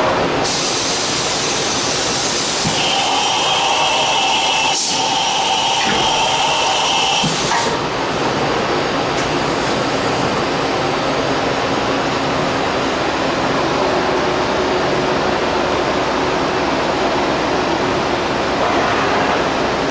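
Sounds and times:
machinery hiss: 0.4 - 7.9.

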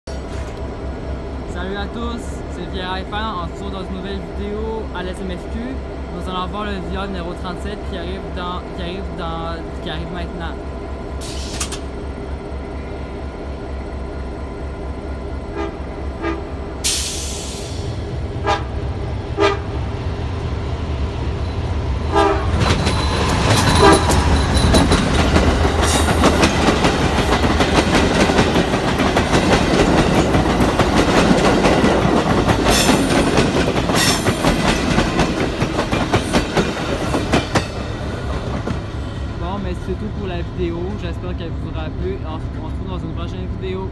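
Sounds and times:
diesel locomotive approaching: 0.1 - 43.9
train horn: 15.5 - 16.6, 18.4 - 18.8, 19.4 - 19.8, 22.1 - 22.6, 23.7 - 24.2.

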